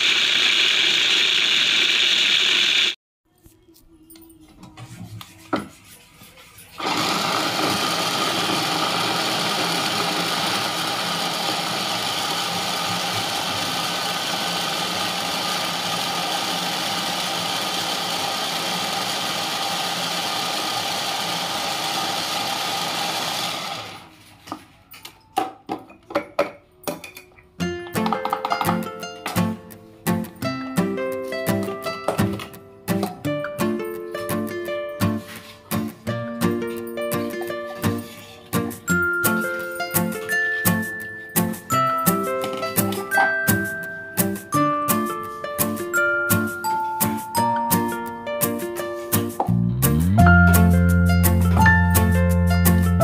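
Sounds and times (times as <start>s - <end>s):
food chopper motor running: 0.0s - 3.0s, 6.8s - 24.1s.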